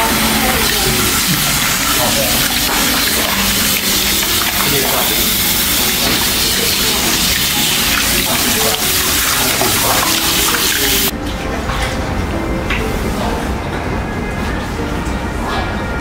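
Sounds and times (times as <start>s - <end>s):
tap water running into basin: 0.0s - 11.1s
water splashing over feet: 0.0s - 11.1s.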